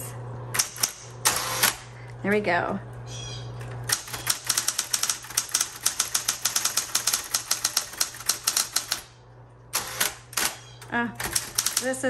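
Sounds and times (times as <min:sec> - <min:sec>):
typewriter motor hum: 0:00.5 - 0:02.1, 0:03.6 - 0:12.0
typewriter keystroke clacks: 0:03.9 - 0:09.1, 0:11.2 - 0:12.0.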